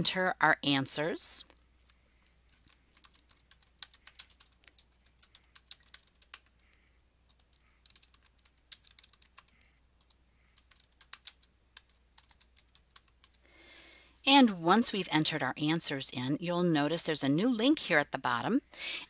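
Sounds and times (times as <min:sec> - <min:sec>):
typing on computer keyboard: 0:02.5 - 0:13.4.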